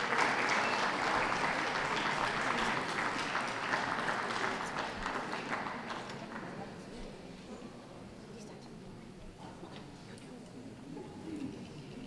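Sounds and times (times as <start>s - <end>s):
crowd applauding: 0.0s - 6.7s.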